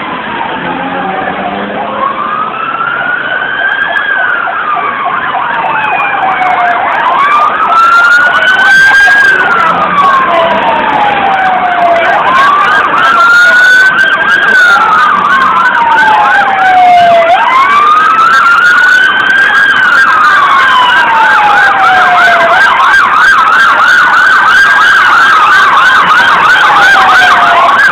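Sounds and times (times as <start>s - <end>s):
siren slow wail: 0.0s - 27.9s
siren fast yelp: 0.6s - 27.9s.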